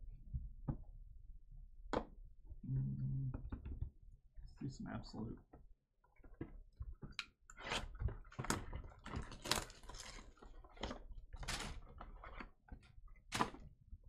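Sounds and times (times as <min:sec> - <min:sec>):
wrapping crinkling and ripping: 0:07.6 - 0:12.6.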